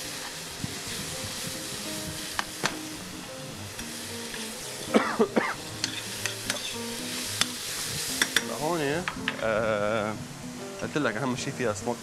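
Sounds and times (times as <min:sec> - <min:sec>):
meat and onion sizzling: 0:00.0 - 0:12.0
metal spoon clicking on pan: 0:05.8 - 0:06.7, 0:08.2 - 0:08.5.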